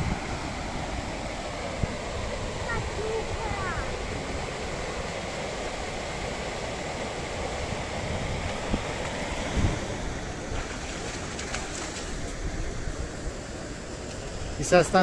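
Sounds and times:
wind on microphone: 0:00.0 - 0:13.5
flowing river water: 0:00.0 - 0:15.0
dog splashing in water: 0:10.6 - 0:12.4.

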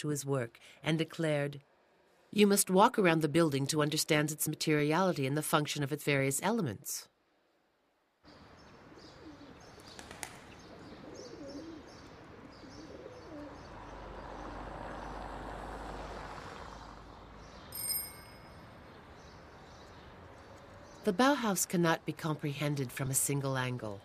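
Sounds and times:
birds calling: 0:08.3 - 0:15.2
short bright ringing tone: 0:17.8 - 0:18.7.

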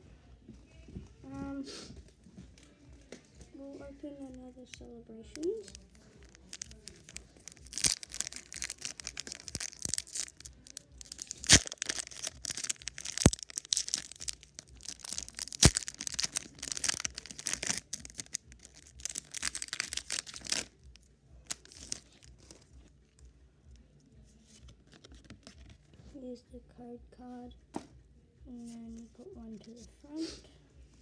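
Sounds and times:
foil pack crinkling: 0:04.2 - 0:20.8, 0:21.4 - 0:22.7
foil pack tearing open: 0:06.3 - 0:20.7.

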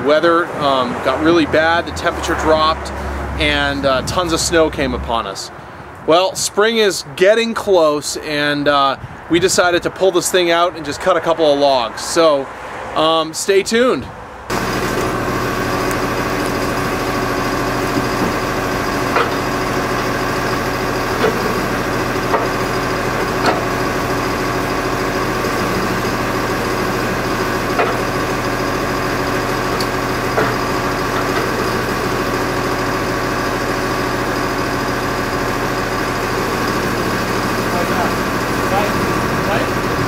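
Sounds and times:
engine idling: 0:00.7 - 0:05.9, 0:14.5 - 0:40.0.

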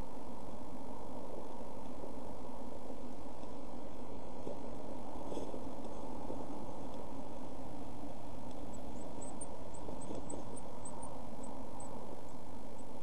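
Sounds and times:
low rumbling noise: 0:00.0 - 0:13.0
faint rustles: 0:02.8 - 0:13.0.

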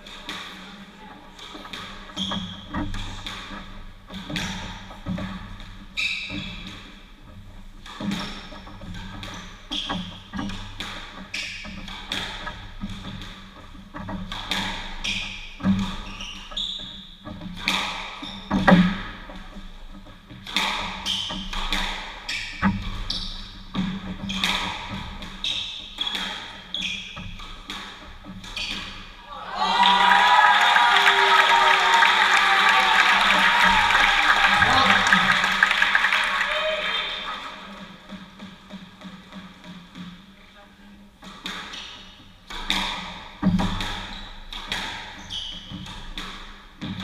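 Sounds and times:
squash ball impacts: 0:01.4 - 0:07.0, 0:07.8 - 0:16.6, 0:17.3 - 0:19.6, 0:20.3 - 0:29.2, 0:41.2 - 0:47.0
shoes squeaking on wooden floor: 0:01.6 - 0:02.9, 0:06.0 - 0:06.7, 0:15.0 - 0:17.4, 0:22.3 - 0:29.1.

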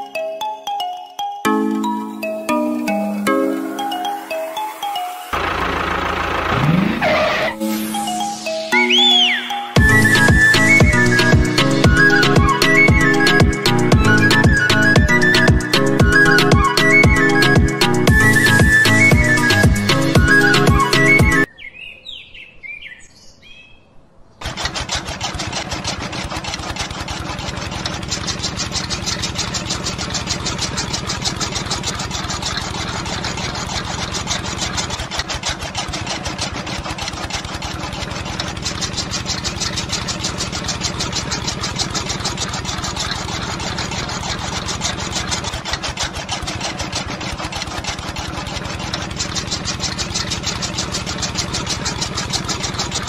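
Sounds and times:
small electric motor rattling: 0:24.4 - 0:53.0.

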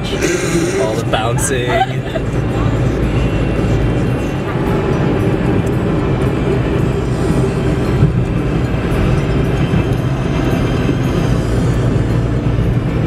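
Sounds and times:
car engine and tyres rumbling: 0:00.0 - 0:13.0.

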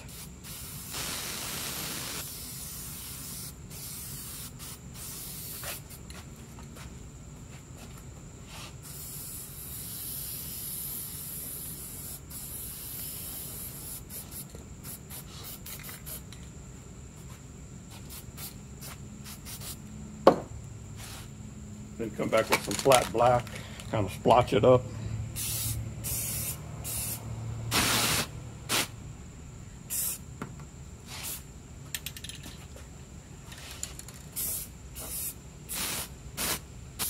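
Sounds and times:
spray paint can hissing: 0:00.0 - 0:06.1, 0:08.5 - 0:16.4, 0:17.9 - 0:19.8, 0:25.4 - 0:29.0, 0:29.9 - 0:30.2, 0:31.0 - 0:32.4, 0:33.5 - 0:37.0.

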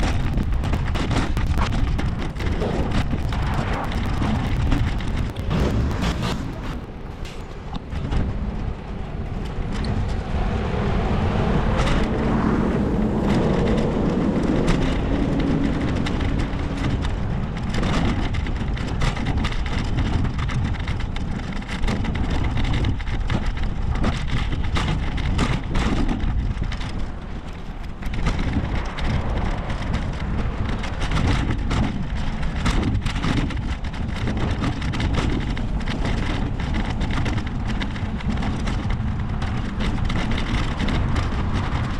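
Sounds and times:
road traffic: 0:00.0 - 0:41.9
wind buffeting microphone: 0:00.0 - 0:41.9
motor vehicle passing: 0:00.7 - 0:18.7, 0:26.4 - 0:32.7.

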